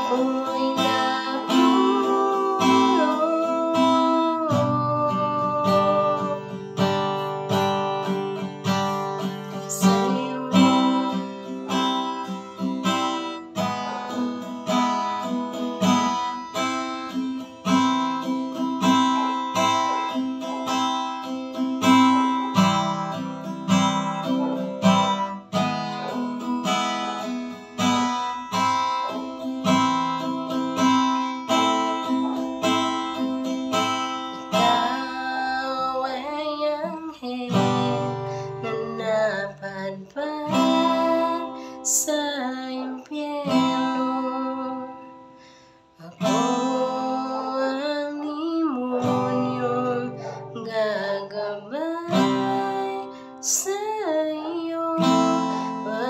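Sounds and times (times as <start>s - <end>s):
woman singing: 0.0s - 45.3s, 46.0s - 56.0s
acoustic guitar strumming: 0.0s - 56.0s.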